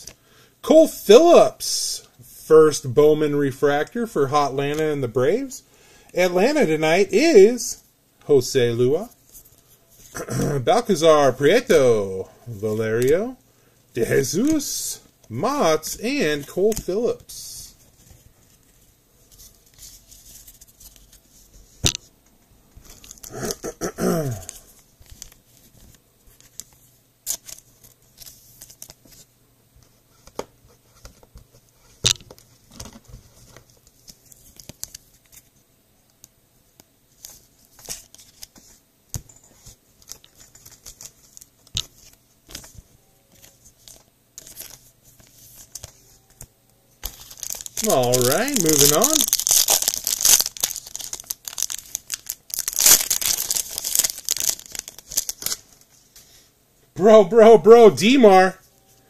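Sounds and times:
cards and sleeves rustling: 0:02.6 - 0:13.4, 0:14.0 - 0:22.0, 0:24.3 - 0:29.3, 0:37.1 - 0:59.0.

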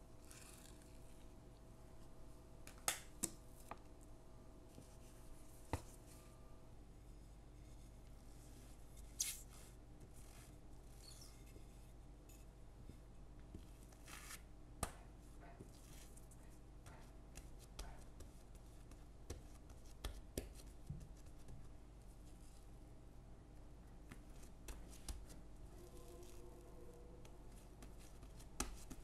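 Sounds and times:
faint steady hum: 0:00.0 - 0:29.0
dough rustling: 0:27.3 - 0:29.0.

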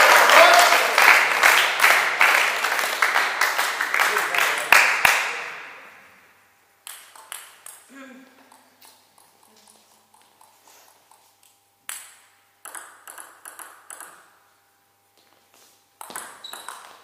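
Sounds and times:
table tennis ball hits: 0:06.8 - 0:07.9, 0:11.8 - 0:14.4, 0:16.0 - 0:17.0.

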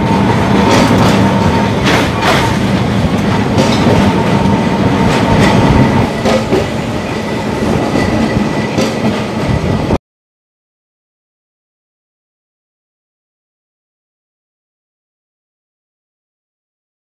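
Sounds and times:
tram rumbling: 0:00.0 - 0:10.0
wheels clicking on rails: 0:00.0 - 0:10.0.

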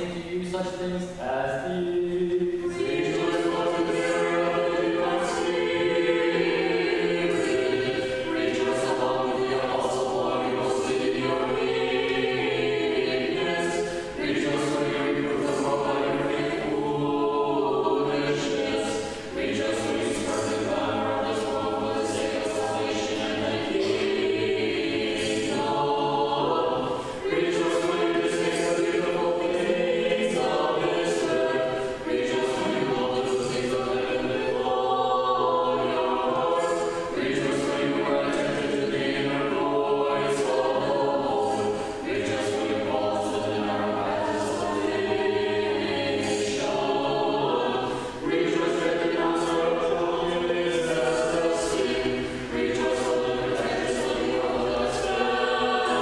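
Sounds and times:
choir chanting a cappella: 0:00.0 - 0:56.0.

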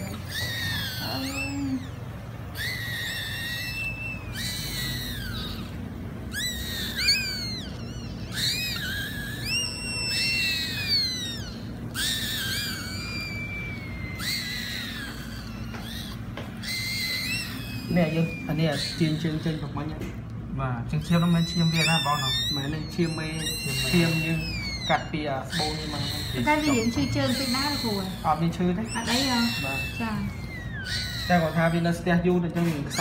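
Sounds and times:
newborn puppies crying: 0:00.0 - 0:33.0.

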